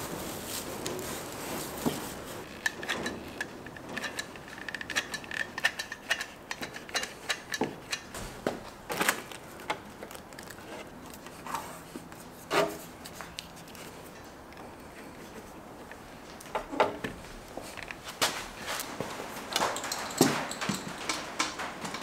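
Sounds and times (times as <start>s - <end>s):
plastic sheet crinkling: 8.7s - 11.3s.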